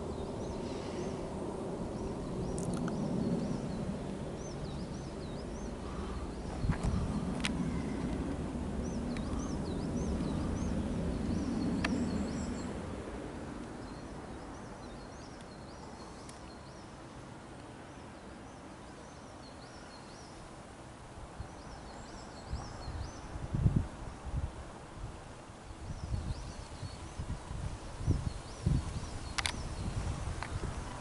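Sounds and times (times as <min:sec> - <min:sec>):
jet airliner rumble overhead: 0:00.0 - 0:31.0
small birds chirping: 0:01.9 - 0:12.8, 0:13.6 - 0:17.0, 0:17.9 - 0:20.5, 0:21.4 - 0:23.4, 0:25.7 - 0:27.4, 0:28.0 - 0:31.0.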